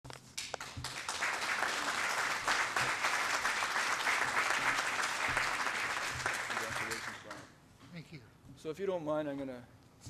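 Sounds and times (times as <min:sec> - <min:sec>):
audience applauding: 0:00.4 - 0:07.5.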